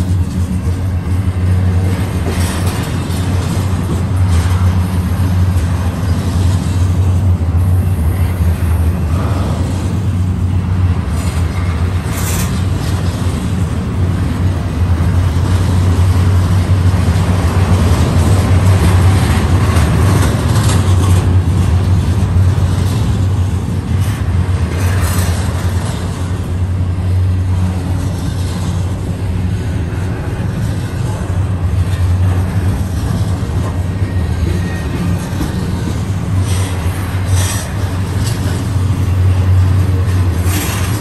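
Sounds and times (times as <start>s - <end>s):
steel wheels rumbling on rails: 0.0s - 41.0s
wheels squealing: 27.0s - 41.0s.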